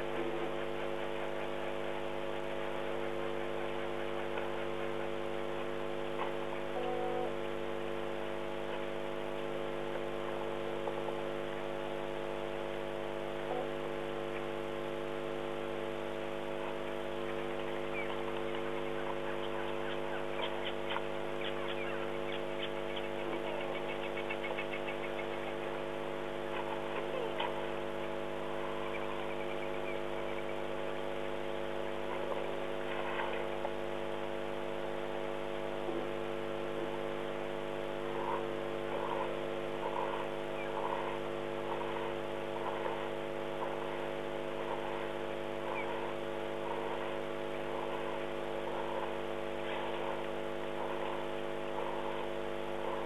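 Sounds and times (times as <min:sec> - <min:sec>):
electrical hum: 0:00.0 - 0:53.0
faint animal chirps: 0:38.0 - 0:50.2
short repeated animal calls: 0:38.0 - 0:53.0.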